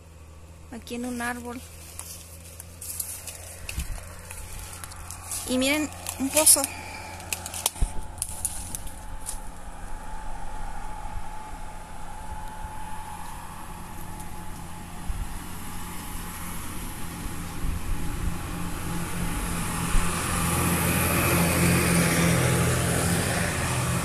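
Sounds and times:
vehicle engine running: 0.0 - 24.0.

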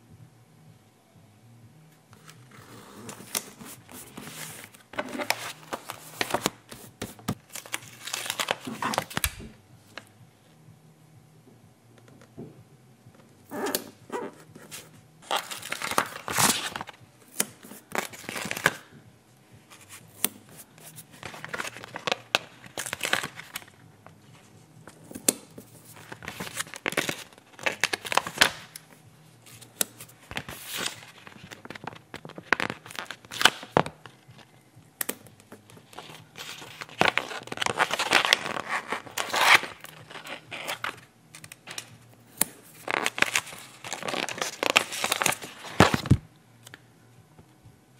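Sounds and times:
paper rustling and crinkling: 2.2 - 9.5, 14.6 - 17.0, 17.6 - 18.8, 19.7 - 23.7, 24.9 - 28.7, 29.5 - 34.5, 35.6 - 41.0, 42.7 - 46.2
stickers peeled off backing: 2.2 - 9.5, 13.5 - 18.8, 19.7 - 23.7, 24.8 - 34.5, 35.1 - 46.8.

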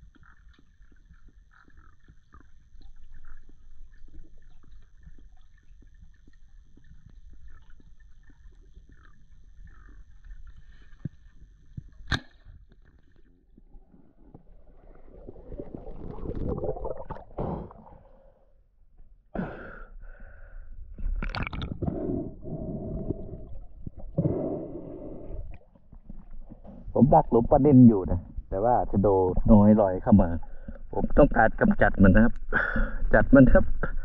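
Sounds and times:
water sloshing and gurgling: 0.0 - 19.3, 20.0 - 34.0
sharp click: 12.0 - 12.4
diver breathing: 14.2 - 18.6, 19.4 - 20.9, 21.8 - 25.7, 30.4 - 30.9
muffled underwater noise: 21.8 - 34.0.

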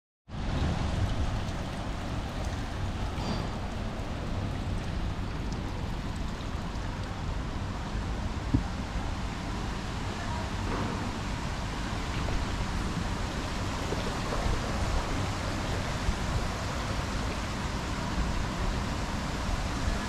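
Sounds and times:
street ambience: 0.3 - 20.0.

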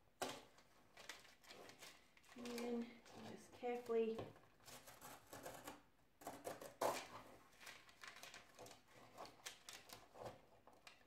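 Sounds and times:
paper rustling and scraping: 0.4 - 5.7, 6.7 - 11.0
craft knife cutting paper: 4.6 - 11.0.

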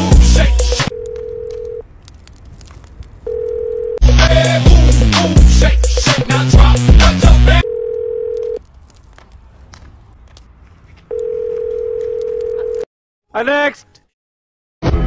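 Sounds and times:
telephone line tone: 0.8 - 1.8, 3.3 - 4.0, 7.6 - 8.6, 11.1 - 12.9
music with heavy bass beat and voice: 4.1 - 7.6.

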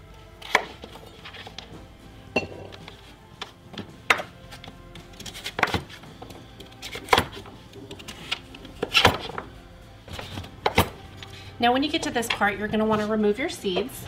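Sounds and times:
knife chopping on wooden board: 0.4 - 1.0.

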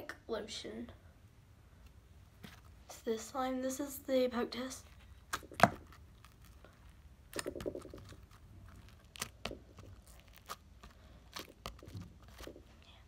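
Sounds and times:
fingers pressing crackling slime: 5.3 - 6.4, 7.3 - 12.8.

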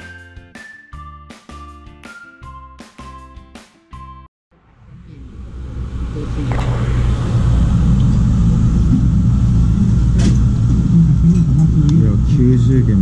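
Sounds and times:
low mechanical rumble: 4.5 - 13.0.

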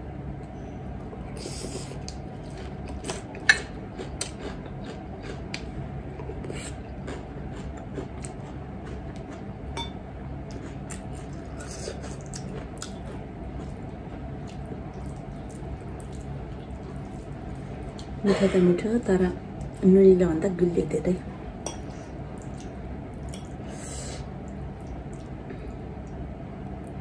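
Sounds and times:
chewing: 1.6 - 9.5, 10.5 - 18.2.

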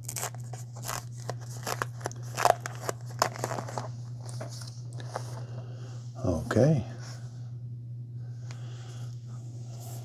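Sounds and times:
paper crackling and crinkling: 0.0 - 5.3
low hum: 0.0 - 10.0.

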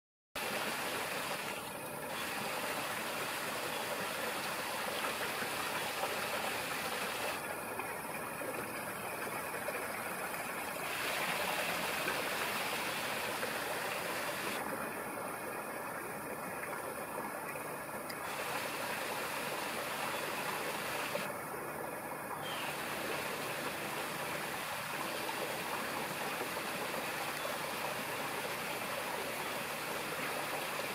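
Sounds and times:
rushing outdoor background noise: 0.4 - 30.9.

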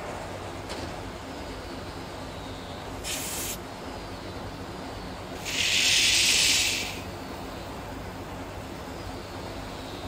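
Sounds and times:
pressurized gas hissing: 3.0 - 3.6, 5.4 - 7.1.

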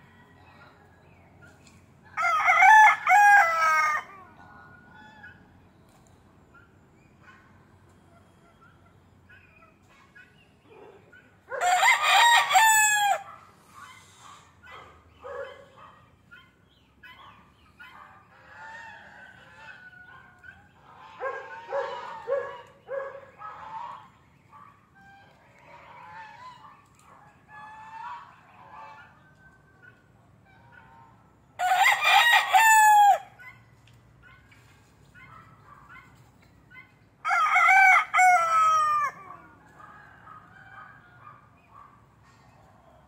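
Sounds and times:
rooster crowing: 2.2 - 4.2, 11.5 - 13.3, 31.6 - 33.4, 37.2 - 39.4
fowl clucking: 16.3 - 24.2.

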